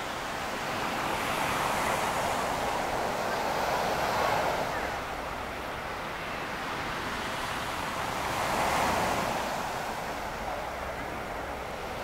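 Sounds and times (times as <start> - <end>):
surf washing onto beach: 6.6 - 12.0.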